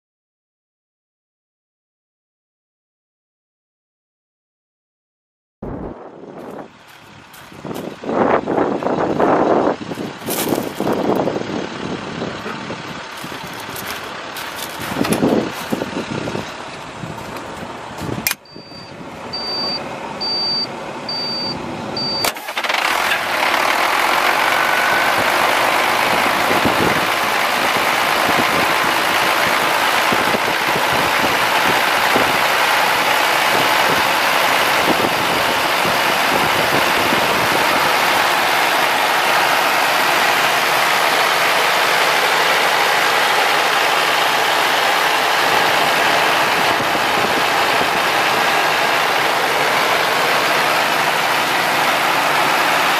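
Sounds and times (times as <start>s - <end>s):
diesel truck engine starting and idling: 5.8s - 52.9s
high beep: 18.4s - 22.3s.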